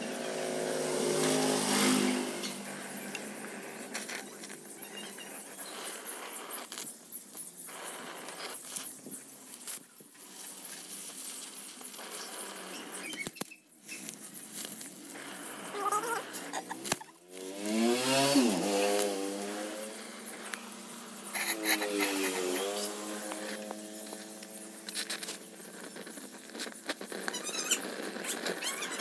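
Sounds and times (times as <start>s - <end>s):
brazing torch hissing: 0.0s - 29.0s
small crackles: 2.4s - 29.0s.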